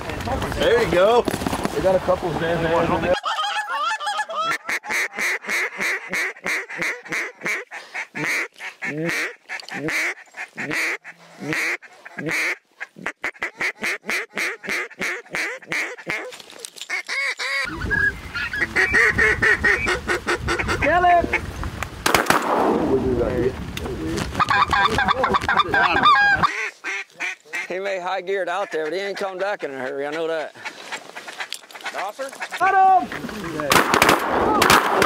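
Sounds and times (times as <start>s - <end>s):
goose call honks and clucks: 3.1s - 21.5s, 24.4s - 27.8s, 28.5s - 33.7s.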